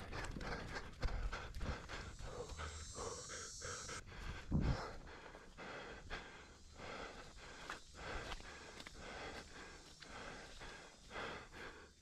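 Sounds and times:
person breathing hard: 0.0 - 12.0
footsteps through brush: 6.6 - 11.3.

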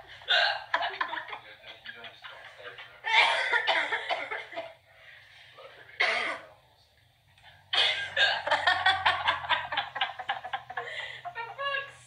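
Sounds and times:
woman laughing: 8.5 - 12.0.

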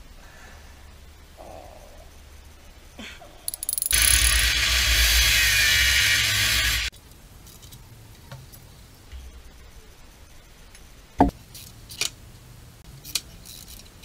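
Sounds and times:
angle grinder cutting metal: 3.9 - 6.9.

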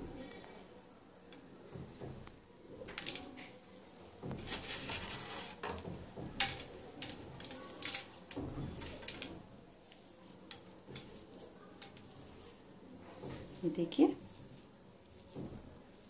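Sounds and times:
fingers scraping mixture in a pan: 4.2 - 16.0.

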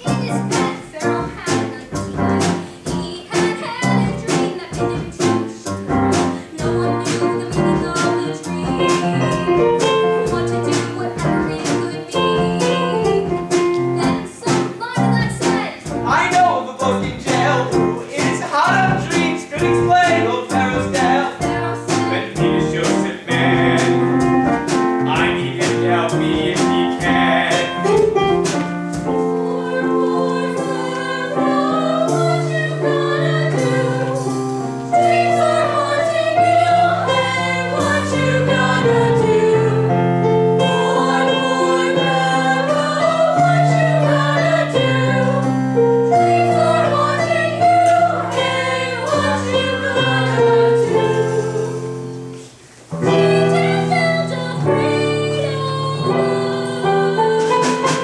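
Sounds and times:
woman singing: 0.0 - 13.1, 13.8 - 15.9, 53.1 - 58.0
instrumental accompaniment: 0.0 - 58.0.

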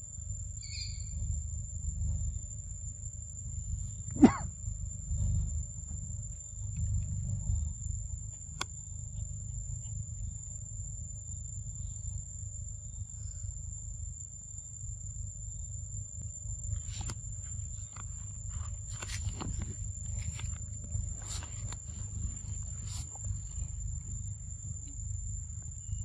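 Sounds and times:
high-pitched insect drone: 0.0 - 26.0
wind rumble on microphone: 0.8 - 8.3.

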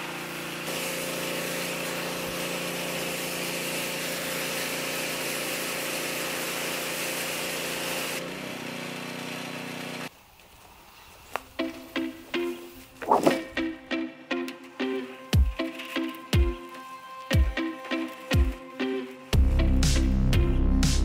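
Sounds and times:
water jet hissing: 0.0 - 8.2
pressure washer motor hum: 0.0 - 10.1.

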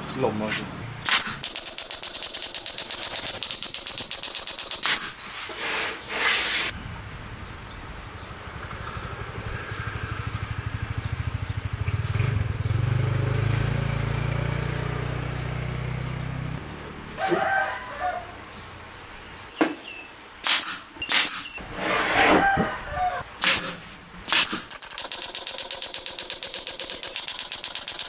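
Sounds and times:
pneumatic nailer firing nails: 1.0 - 5.2, 20.4 - 21.6, 23.4 - 28.0
short bursts of air: 1.0 - 6.8, 20.4 - 21.6, 23.4 - 28.0.

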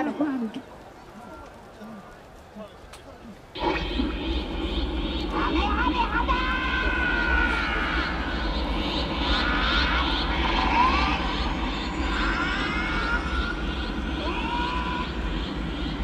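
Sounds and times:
crowd murmuring: 0.0 - 16.0
steady low rumble: 3.4 - 16.0.

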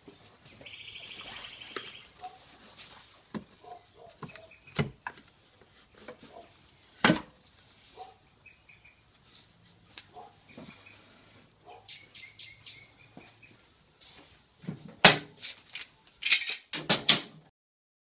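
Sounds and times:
small birds chirping: 0.0 - 2.4, 3.6 - 5.0, 6.3 - 9.2, 9.9 - 13.7.

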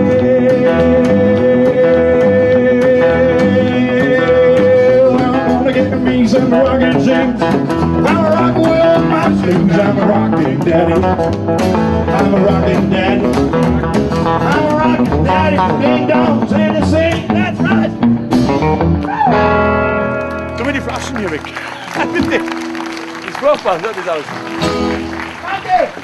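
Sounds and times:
man singing: 0.0 - 18.1
acoustic guitar strumming: 0.0 - 26.0
second guitar: 0.0 - 26.0.

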